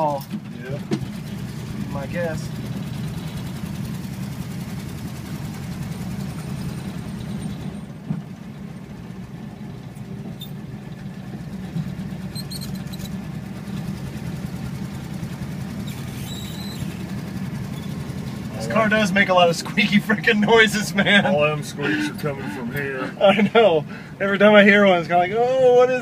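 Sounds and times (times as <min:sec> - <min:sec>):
car engine running: 0:00.0 - 0:26.0
high squeaks: 0:12.2 - 0:13.3, 0:15.8 - 0:18.1.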